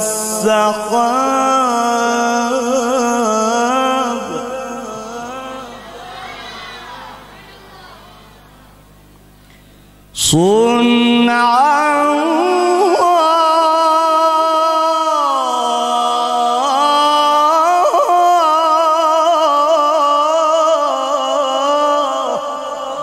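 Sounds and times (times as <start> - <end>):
man reciting melodically: 0.0 - 6.3, 10.1 - 23.0.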